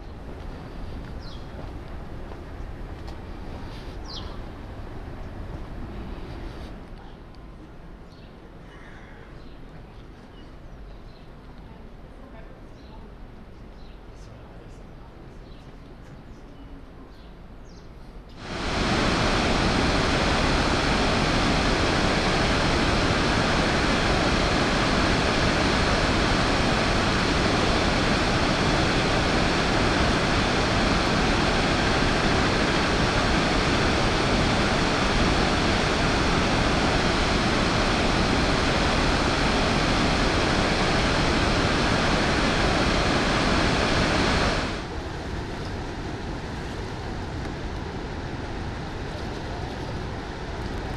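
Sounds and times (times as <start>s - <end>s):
waterfall rushing over rocks: 18.4s - 45.0s.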